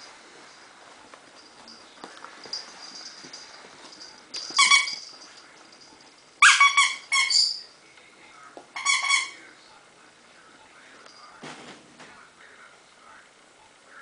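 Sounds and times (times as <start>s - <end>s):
squeaky dog toy squeaks: 4.6s - 5.1s, 6.4s - 7.7s, 8.8s - 9.4s.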